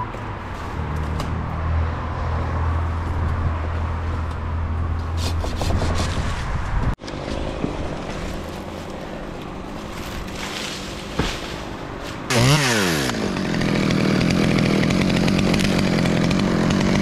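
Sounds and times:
branches and leaves scraping: 0.4 - 1.3, 5.2 - 13.0.

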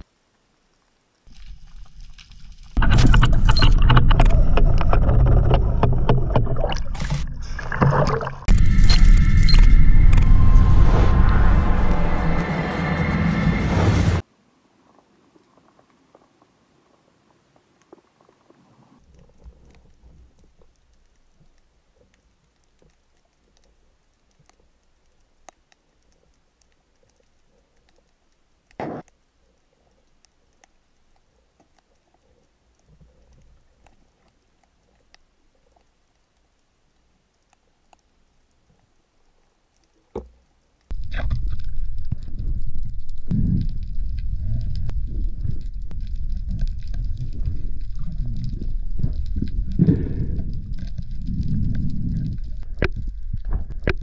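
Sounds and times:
faint underwater ticks and crackles: 0.0 - 10.3, 14.6 - 54.0
underwater scrape: 1.3 - 14.2, 40.9 - 54.0
churning water noise: 2.8 - 14.2.

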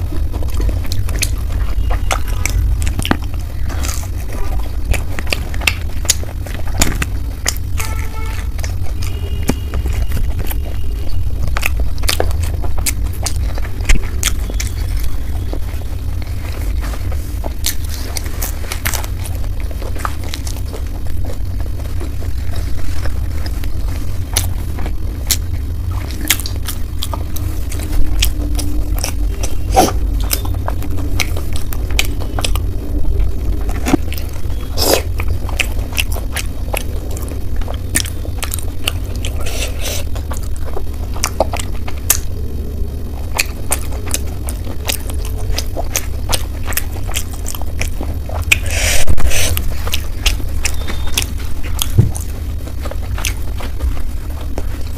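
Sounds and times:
person chewing and biting: 0.0 - 54.9
steady low hum: 0.0 - 54.9.

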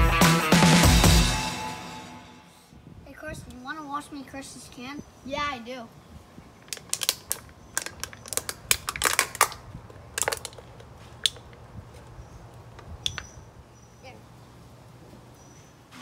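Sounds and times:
drink can crushed by hand: 6.7 - 10.6.

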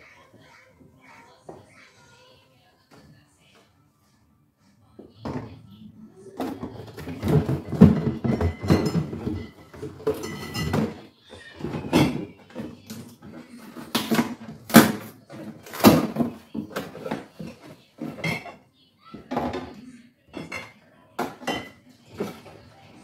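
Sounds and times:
containers knocking and scraping: 6.4 - 19.8.

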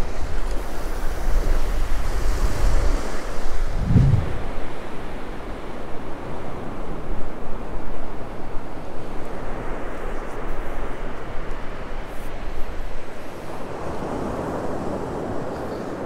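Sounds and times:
ocean surf washing up: 0.0 - 5.5
wind buffeting microphone: 1.0 - 7.1.

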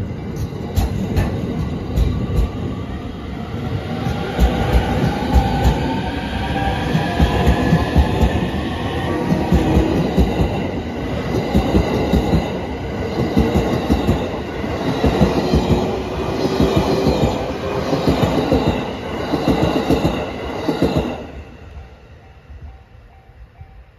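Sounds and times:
train wheel clatter: 0.3 - 2.7, 4.1 - 8.6.

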